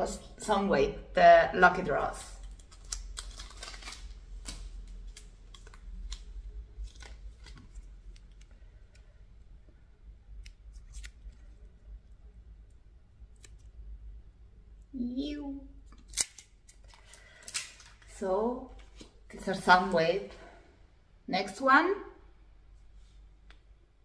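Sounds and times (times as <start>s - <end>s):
wrapper rustling and crackling: 2.3s - 9.0s, 16.0s - 19.2s.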